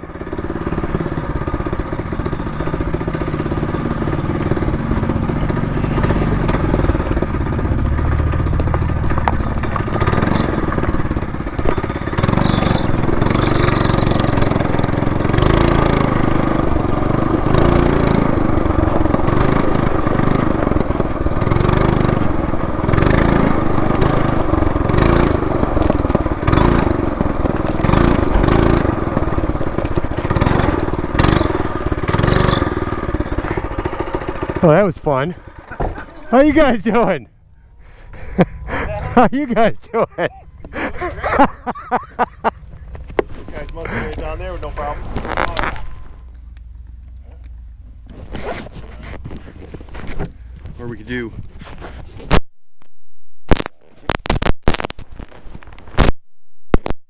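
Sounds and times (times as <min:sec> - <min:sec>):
minibike engine running: 0:00.0 - 0:52.3
brief crackles of noise: 0:51.5 - 0:57.0.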